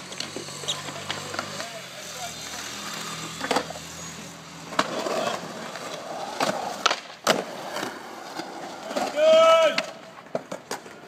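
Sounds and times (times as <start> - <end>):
skateboard wheels rolling on concrete: 0.0 - 11.0
skateboard grinding on metal rail: 2.5 - 9.2
skateboard clacking on ground: 4.7 - 11.0.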